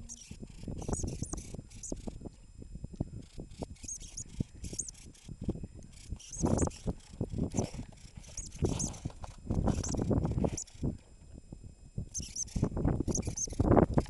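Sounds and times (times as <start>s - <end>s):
lemming squeaking: 3.3s - 11.0s, 12.1s - 14.0s.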